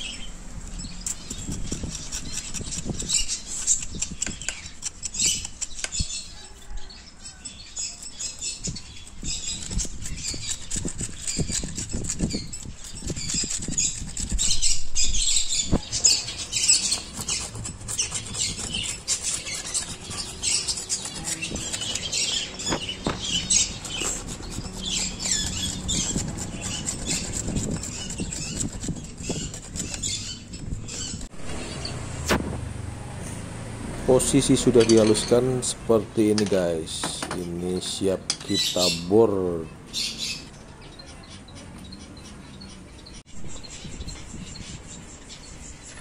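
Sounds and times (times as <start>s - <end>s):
machete scraping bark: 9.4s - 32.5s.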